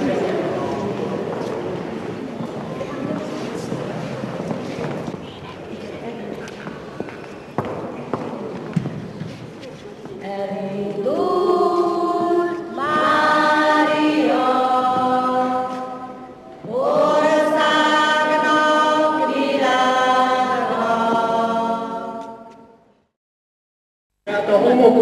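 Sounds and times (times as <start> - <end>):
group of voices singing: 10.2 - 22.8.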